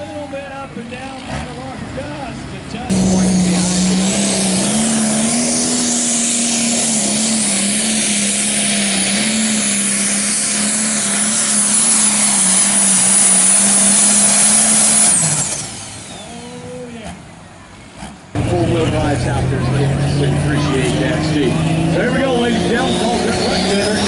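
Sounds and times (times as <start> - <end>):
diesel tractor engine droning: 0.0 - 24.0.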